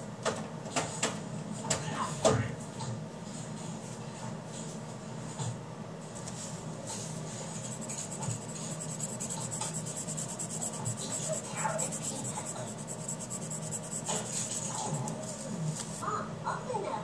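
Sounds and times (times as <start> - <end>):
pencil scratching on paper: 7.1 - 15.5.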